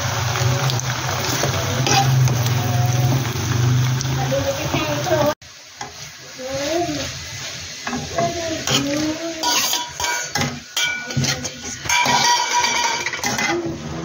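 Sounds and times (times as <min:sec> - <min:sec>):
food sizzling in a pan: 0:00.0 - 0:14.0
spatula scraping a metal pan: 0:07.8 - 0:14.0
spatula clinking against pan: 0:09.4 - 0:13.6.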